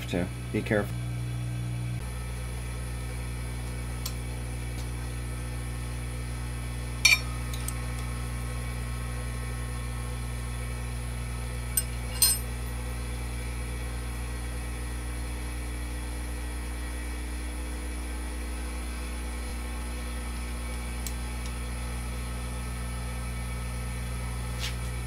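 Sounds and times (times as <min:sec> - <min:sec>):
electrical machinery hum: 0:00.0 - 0:25.0
metallic clinks of hand tool: 0:11.8 - 0:12.5.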